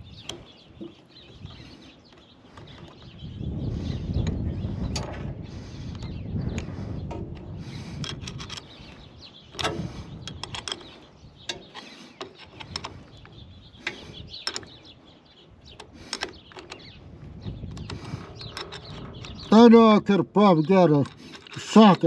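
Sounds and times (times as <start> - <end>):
wrenches clicking on bolt: 8.0 - 8.9, 9.5 - 13.2, 13.8 - 14.8, 15.7 - 17.0, 17.6 - 22.0.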